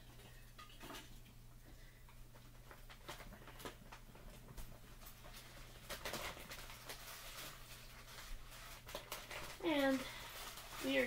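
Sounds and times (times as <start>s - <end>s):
plastic bag crinkling: 2.4s - 11.0s.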